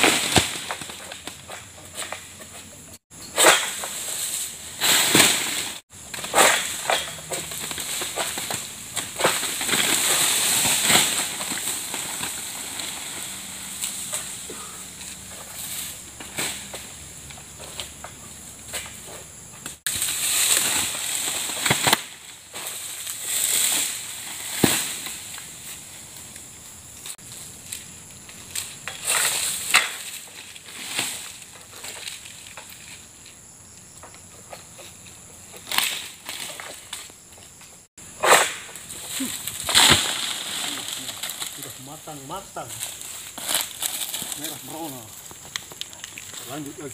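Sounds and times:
sickle rasping and cutting: 0.0 - 16.8
palm fronds rustling: 0.0 - 46.9
blade scraping and snapping fronds: 3.4 - 16.9, 19.7 - 25.5, 27.0 - 33.0, 35.6 - 37.1, 38.2 - 42.0, 42.7 - 46.9.

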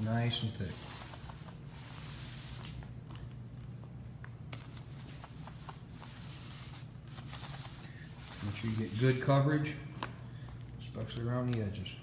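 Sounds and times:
paint roller hissing: 0.0 - 2.9, 4.6 - 9.4
steady low hum: 0.0 - 12.0.

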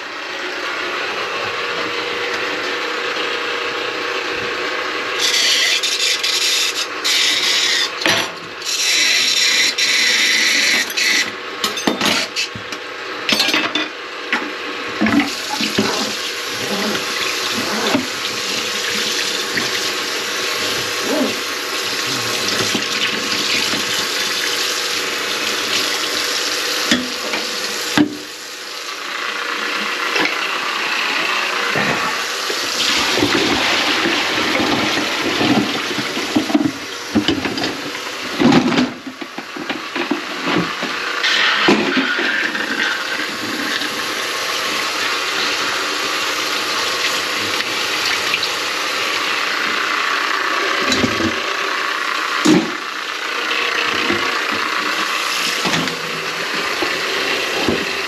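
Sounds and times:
water running in a sink: 15.0 - 30.6, 31.2 - 40.1, 41.3 - 50.0.

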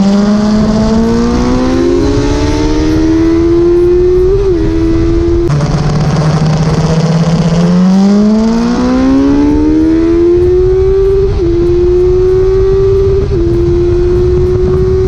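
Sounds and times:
motorcycle engine accelerating: 0.0 - 15.0
rushing wind: 0.0 - 15.0.

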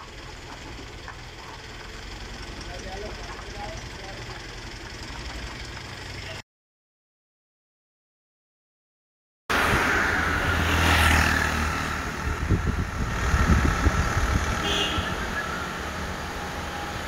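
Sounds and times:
low traffic rumble: 0.0 - 6.4, 9.5 - 17.0
vehicle passing: 9.5 - 17.0.

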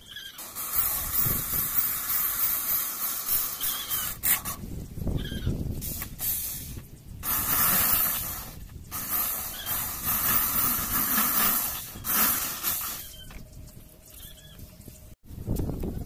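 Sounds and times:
electric drill cutting metal: 0.0 - 4.4, 7.2 - 13.2.

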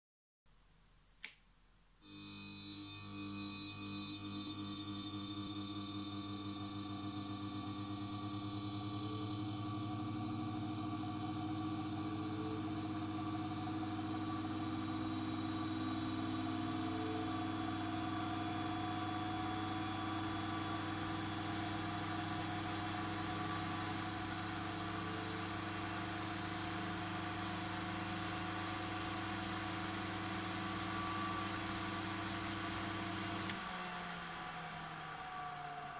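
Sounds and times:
sharp click: 0.6 - 1.5
electrical hum: 2.0 - 35.9
fan air noise with rising tone: 2.6 - 35.9.

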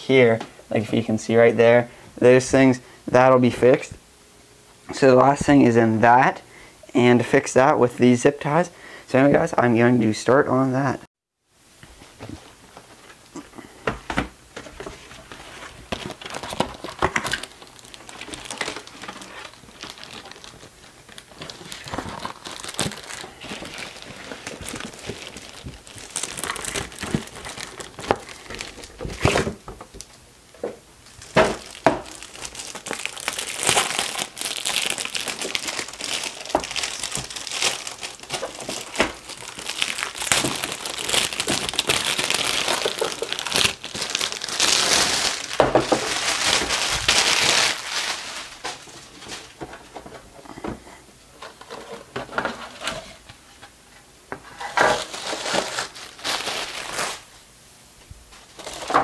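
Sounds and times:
packaging crinkling: 14.6 - 30.2, 31.0 - 50.3, 54.5 - 57.3, 58.3 - 59.0.

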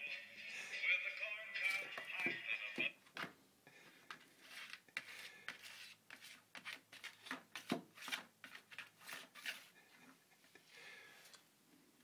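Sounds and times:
papery scrapes and rustles: 4.4 - 9.8.

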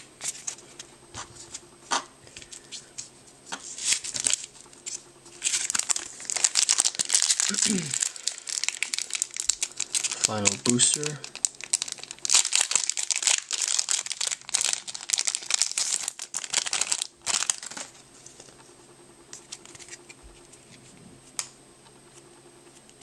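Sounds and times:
foil pack tearing and crinkling: 3.7 - 18.0.

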